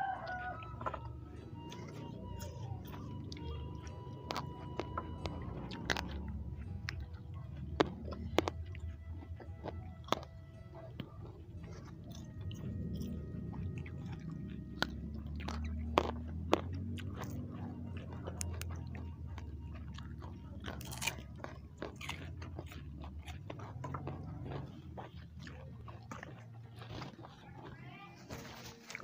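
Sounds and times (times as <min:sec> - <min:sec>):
chewing and crunching food: 0:00.0 - 0:29.0
low hum: 0:00.0 - 0:29.0
wet mouth sounds: 0:00.2 - 0:27.8.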